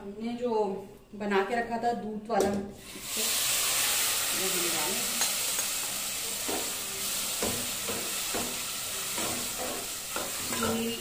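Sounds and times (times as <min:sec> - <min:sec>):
food sizzling in pot: 0:02.8 - 0:11.0.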